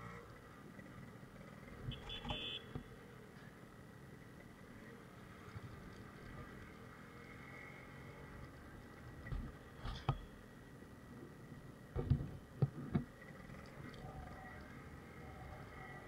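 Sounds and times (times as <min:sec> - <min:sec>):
muffled motorcycle running: 0:04.3 - 0:16.0
knocks and thumps over bumps: 0:09.0 - 0:10.3, 0:11.9 - 0:13.2.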